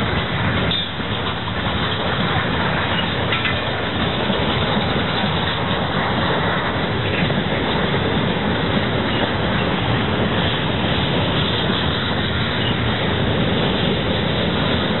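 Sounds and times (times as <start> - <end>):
steel wheels rumbling on rail: 0.0 - 15.0
sharp clicks and clanks: 0.1 - 8.1.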